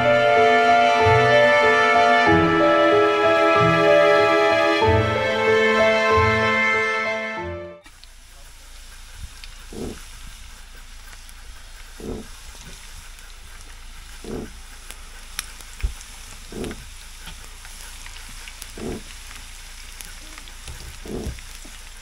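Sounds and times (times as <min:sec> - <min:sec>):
steady hiss: 0:07.8 - 0:22.0.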